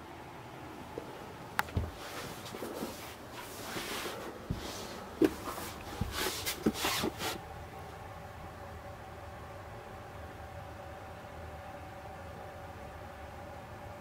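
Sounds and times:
rustling and shuffling: 0:00.8 - 0:08.0.

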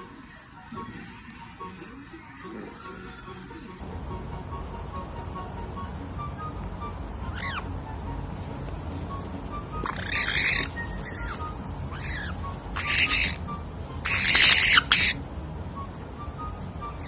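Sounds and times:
parrot whistling: 0:04.5 - 0:08.1, 0:09.1 - 0:17.0
parrot squawking: 0:05.8 - 0:08.1, 0:09.5 - 0:15.3.

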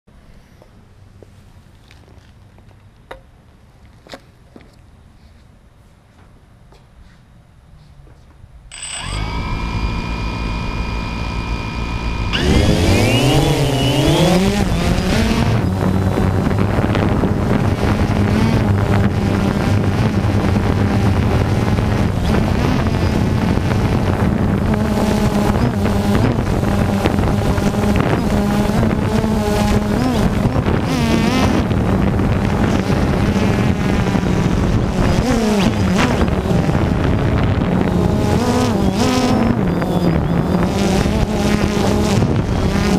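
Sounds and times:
drone motors buzzing: 0:08.7 - 0:42.9.

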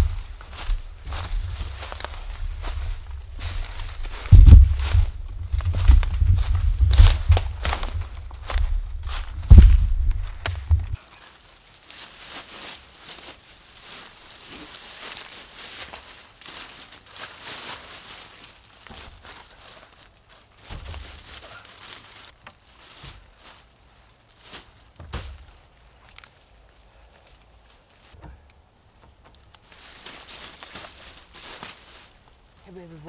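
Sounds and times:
footsteps through dry leaves: 0:00.0 - 0:28.2, 0:29.6 - 0:33.0
wood knocks and thuds: 0:02.7 - 0:11.0.

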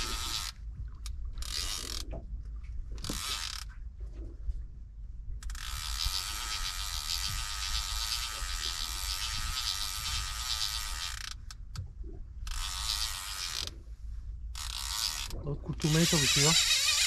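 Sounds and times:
fishing reel drag clicking: 0:00.0 - 0:02.1, 0:03.0 - 0:03.7, 0:05.4 - 0:11.8, 0:12.4 - 0:13.8, 0:14.5 - 0:17.0.

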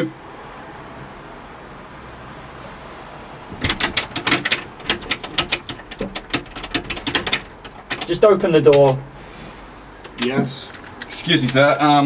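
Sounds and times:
rapid knocking on glass door: 0:03.5 - 0:09.0.

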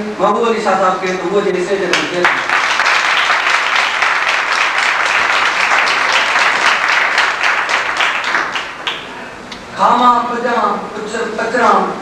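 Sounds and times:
audience applauding: 0:01.9 - 0:09.2.

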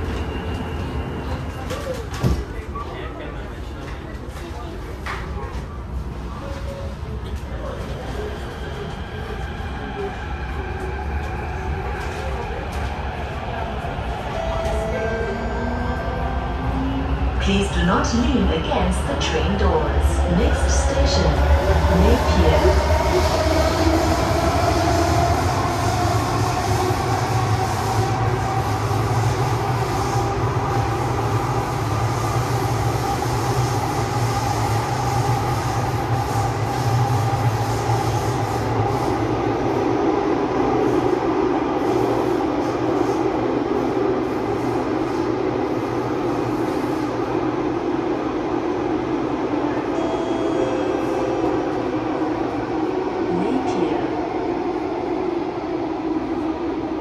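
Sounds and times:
train wheels rumbling on rail: 0:16.4 - 0:49.9.

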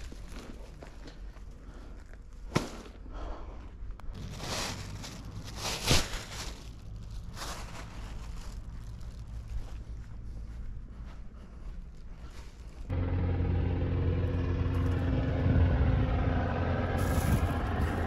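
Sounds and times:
plastic bag rustling: 0:00.0 - 0:03.0, 0:04.0 - 0:10.6.

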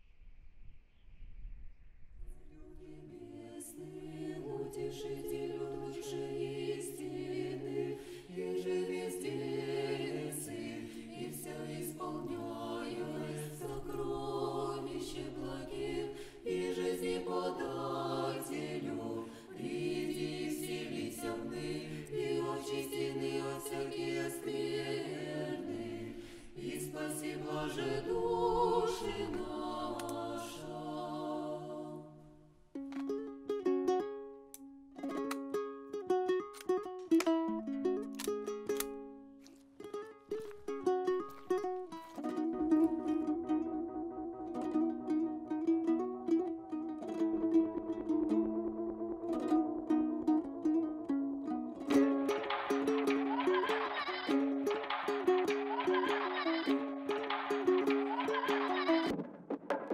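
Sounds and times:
a cappella choir singing: 0:02.2 - 0:32.6, 0:42.2 - 0:59.2.

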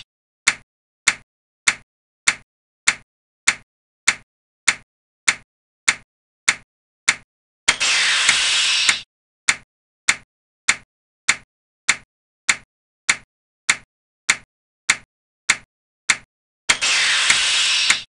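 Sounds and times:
clock ticking: 0:00.0 - 0:07.3, 0:09.5 - 0:16.3
hissing swoosh: 0:16.7 - 0:18.0.

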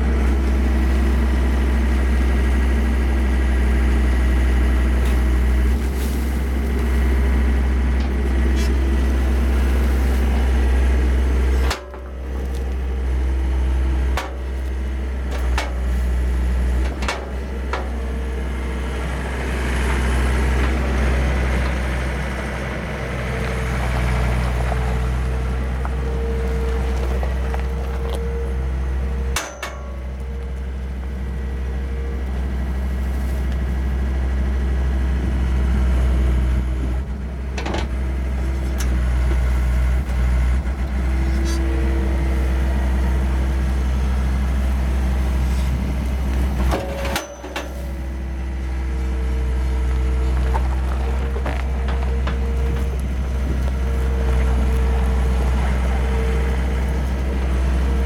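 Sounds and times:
diesel engine running: 0:00.0 - 0:58.0
sharp metal clanks: 0:29.4 - 0:30.1, 0:46.8 - 0:47.8.

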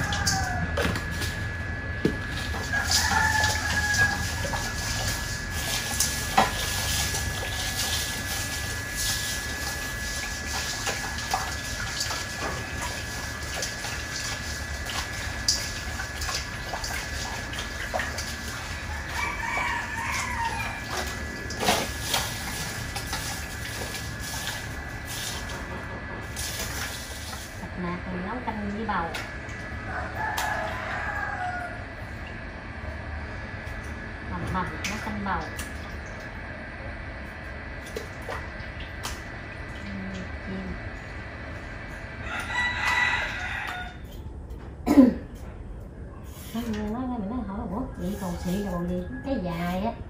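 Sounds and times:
roosters crowing: 0:00.0 - 0:01.1, 0:02.2 - 0:05.6, 0:18.3 - 0:21.5, 0:29.6 - 0:32.2, 0:42.0 - 0:44.2.

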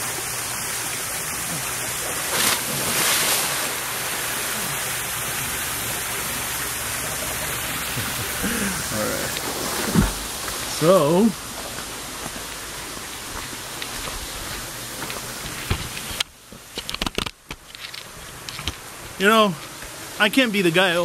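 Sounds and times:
rushing hiss of water: 0:00.0 - 0:16.7, 0:18.1 - 0:21.0
person splashing into pool: 0:01.4 - 0:05.6.

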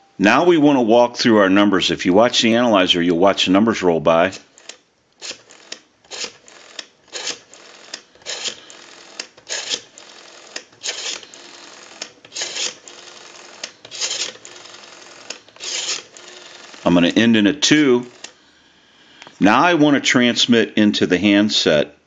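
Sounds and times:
rotary dial rasping: 0:04.3 - 0:18.4
rotary dial whirring back: 0:04.3 - 0:18.4.

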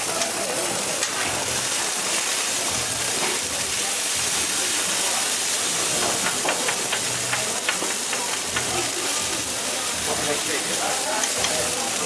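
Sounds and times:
burgers sizzling on griddle: 0:00.0 - 0:12.0
spatula clicking on griddle: 0:05.9 - 0:09.2, 0:10.7 - 0:11.7.

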